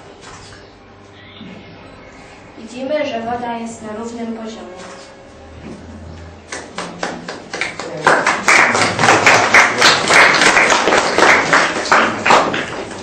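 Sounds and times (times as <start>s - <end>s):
group of people clapping: 6.5s - 13.0s.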